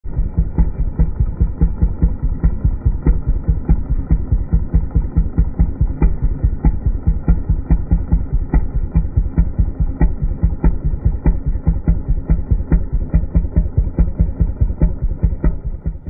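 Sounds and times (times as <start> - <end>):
small engine idling: 0.0 - 16.0.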